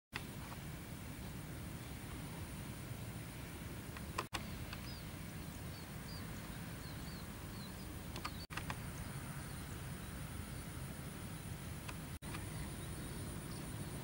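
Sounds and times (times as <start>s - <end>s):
small birds chirping: 3.3s - 14.0s.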